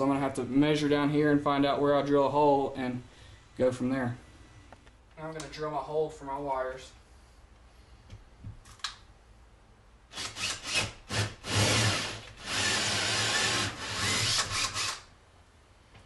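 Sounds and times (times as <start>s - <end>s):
drill with hole saw cutting drywall: 10.1s - 15.1s.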